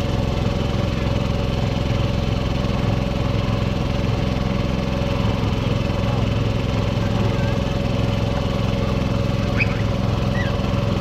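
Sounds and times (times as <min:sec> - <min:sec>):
small engine driving water pump: 0:00.0 - 0:11.0.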